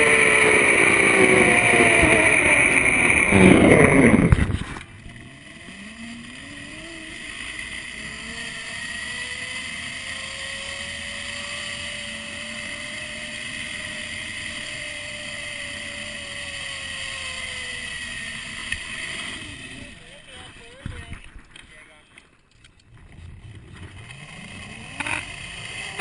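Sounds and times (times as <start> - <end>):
zip-line pulleys whining on cable: 0.0 - 20.7, 23.8 - 26.0.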